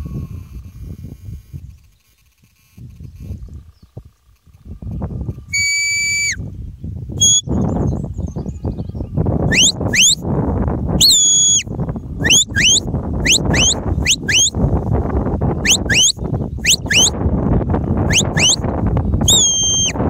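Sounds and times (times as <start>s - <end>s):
wind rumble on microphone: 0.0s - 2.0s, 2.6s - 20.0s
sheepdog whistle notes: 5.5s - 6.4s, 7.2s - 7.6s, 9.5s - 10.2s, 11.0s - 14.6s, 15.6s - 17.2s, 18.1s - 18.6s, 19.2s - 20.0s.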